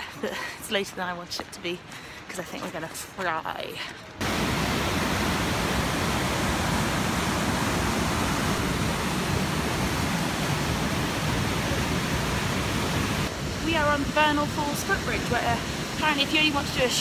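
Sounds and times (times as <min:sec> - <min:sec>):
river rapids rushing over boulders: 0:04.2 - 0:17.0.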